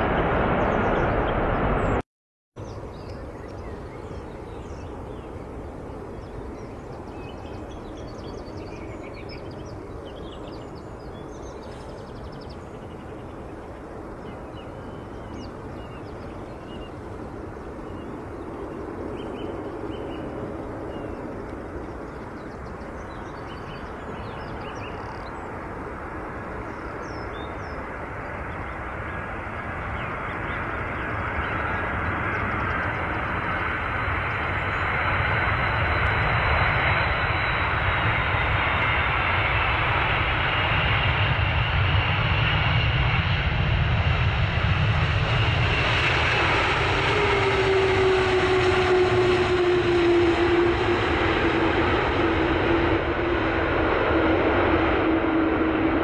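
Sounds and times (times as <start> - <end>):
jet airliner engine noise: 0.0 - 2.0, 2.6 - 56.0
small birds chirping: 2.6 - 25.7, 26.4 - 35.3.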